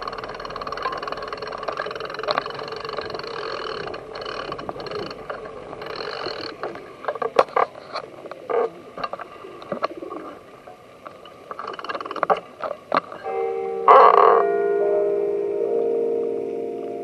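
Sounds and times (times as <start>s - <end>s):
pigeons clicking and tapping: 0.1s - 10.1s, 11.5s - 13.2s
pigeons cooing: 2.5s - 10.5s.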